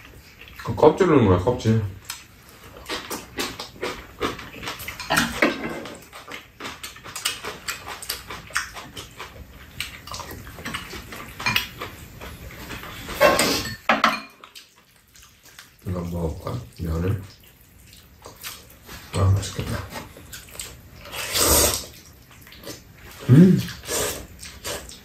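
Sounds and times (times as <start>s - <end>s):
people chewing: 0.0s - 0.8s, 2.0s - 13.7s, 14.4s - 25.0s.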